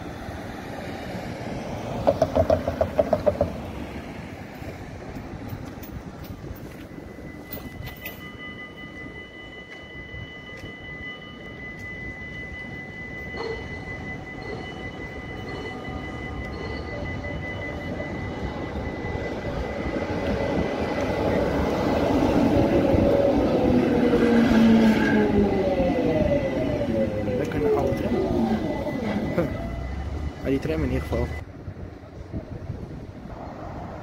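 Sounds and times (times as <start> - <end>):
tram motor whine: 0.0 - 34.0
tram wheels rumbling on rails: 0.0 - 34.0
faint steady high tone: 5.5 - 31.5.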